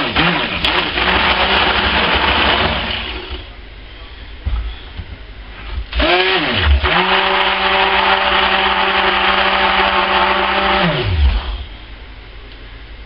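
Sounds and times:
stick blender motor whining: 0.0s - 3.4s, 6.0s - 11.7s.

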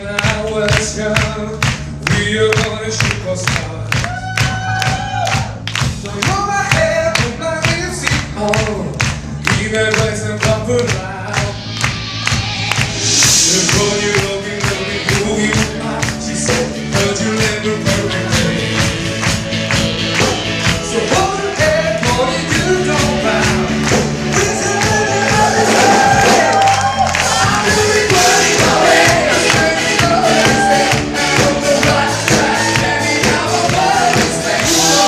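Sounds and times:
audience clapping along: 0.0s - 35.0s
live band music with singing: 0.0s - 35.0s.

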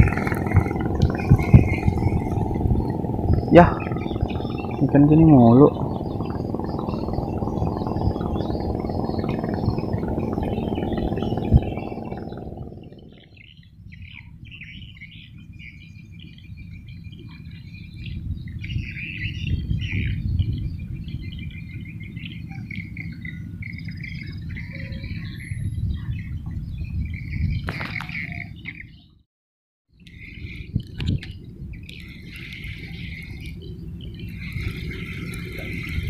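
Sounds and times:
steady low rumble: 0.0s - 14.1s, 30.1s - 36.0s
small birds chirping: 0.0s - 29.2s, 30.0s - 36.0s.

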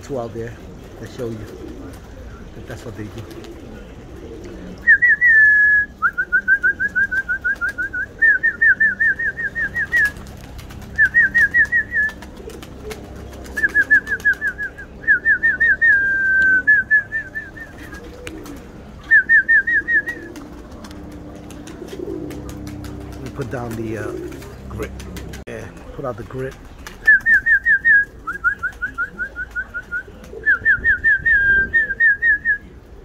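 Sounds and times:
pigeons cooing: 0.0s - 33.0s
songbird whistling: 4.8s - 10.2s, 10.9s - 12.2s, 13.5s - 18.4s, 19.0s - 20.4s, 27.0s - 32.7s.

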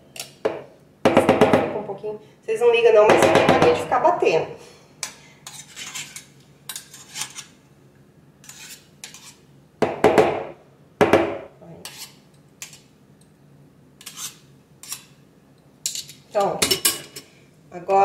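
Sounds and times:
spoon scraping mixer beaters: 5.0s - 7.6s, 8.4s - 9.5s, 11.8s - 12.9s, 14.0s - 15.2s.

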